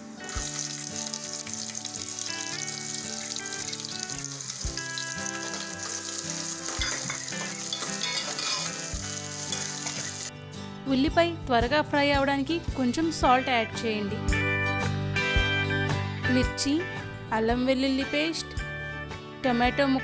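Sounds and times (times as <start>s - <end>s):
onions sizzling in hot oil: 0.0s - 10.3s
background music: 0.0s - 20.0s
metal spatula stirring: 5.1s - 10.3s.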